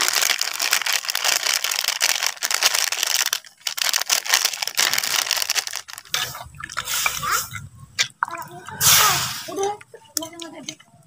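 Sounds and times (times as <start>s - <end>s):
plastic sachet crinkling: 0.0s - 6.9s.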